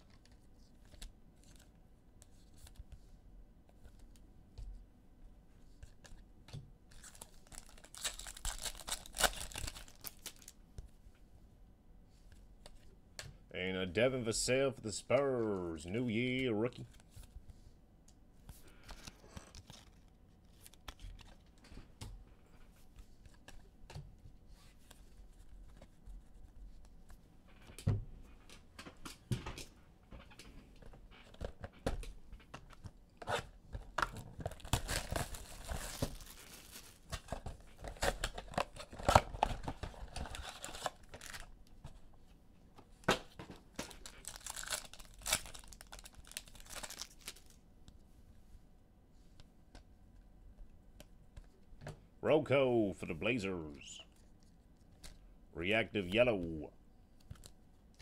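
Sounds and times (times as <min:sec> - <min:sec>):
cards shuffled by hand: 0:06.9 - 0:10.6, 0:18.4 - 0:21.7
foil wrappers tearing and crinkling: 0:06.9 - 0:10.6, 0:18.9 - 0:21.4, 0:34.0 - 0:41.5, 0:43.8 - 0:47.6.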